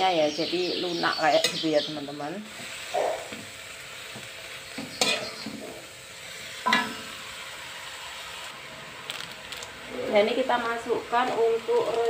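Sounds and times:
leaves sizzling in a wok: 0.0 - 12.0
metal spatula clattering on pan: 4.9 - 5.5.

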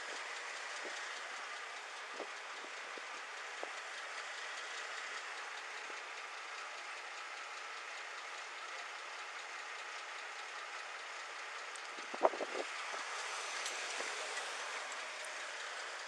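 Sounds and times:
faint tick: 8.2 - 13.0.

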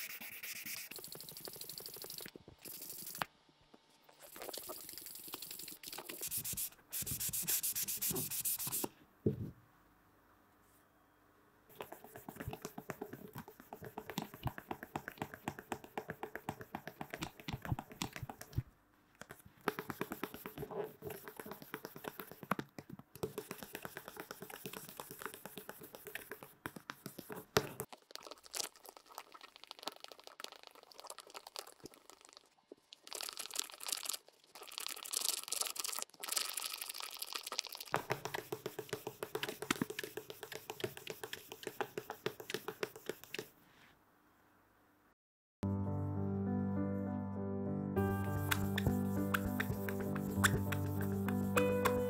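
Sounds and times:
sandpaper scratching: 0.0 - 1.0, 5.1 - 8.9, 48.2 - 52.0.

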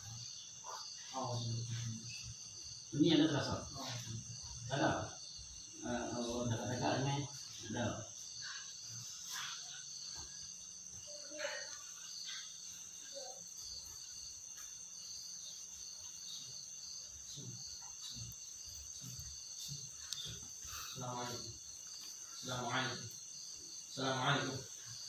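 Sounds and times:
insects high trill: 0.0 - 25.0
insects pulsing chirp: 0.0 - 25.0.

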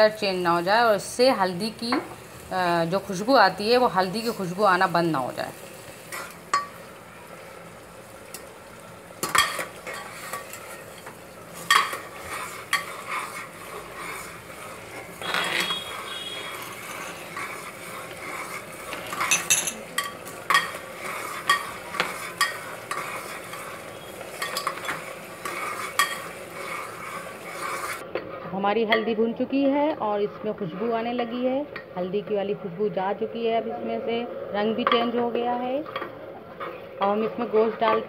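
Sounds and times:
paste sizzling in hot oil: 0.0 - 28.0
spatula scraping and knocking pot: 9.2 - 28.3.

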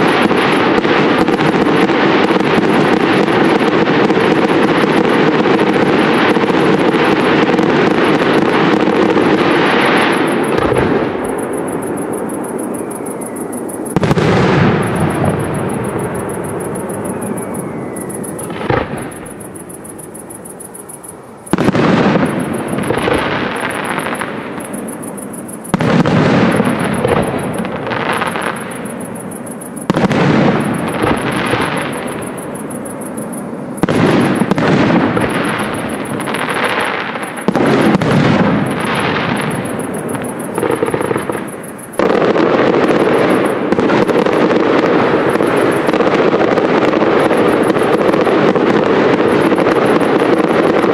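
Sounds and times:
firework shells banging: 0.0 - 33.2
firework crackling and rumbling: 0.0 - 50.9.

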